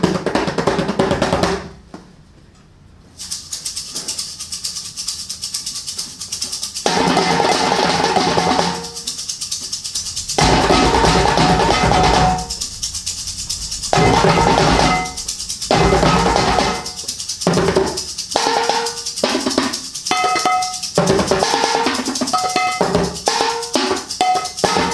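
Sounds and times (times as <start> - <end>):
percussion on pot lids and tins: 3.2 - 24.9
quick high ticks: 8.8 - 21.0
deep bass layer: 9.9 - 17.1.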